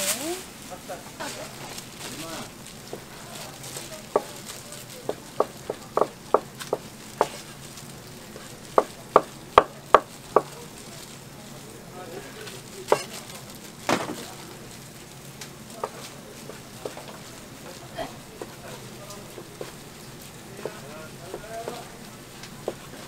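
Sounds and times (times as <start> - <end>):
steady background hiss: 0.0 - 23.0
knife chopping on plastic board: 5.0 - 7.5, 8.4 - 10.6, 12.9 - 13.1, 15.8 - 17.2, 19.3 - 19.8, 20.6 - 21.9, 22.6 - 23.0.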